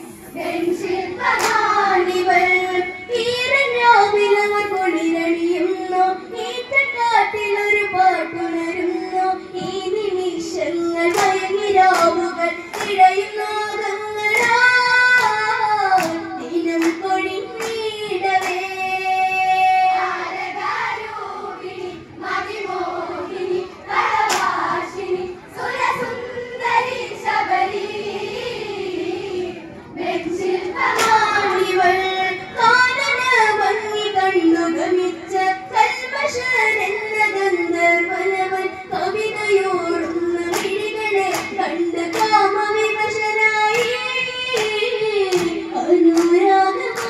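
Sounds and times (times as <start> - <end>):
women singing through loudspeakers: 0.0 - 47.0
hand claps: 1.3 - 1.8, 11.1 - 13.4, 14.3 - 18.8, 24.2 - 24.7, 30.9 - 31.3, 40.0 - 42.5, 43.7 - 47.0.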